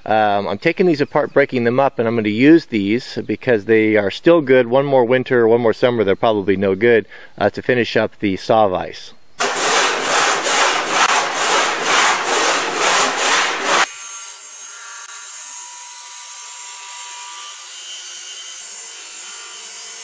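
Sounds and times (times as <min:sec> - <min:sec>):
hand saw cutting wood: 0:09.4 - 0:20.0.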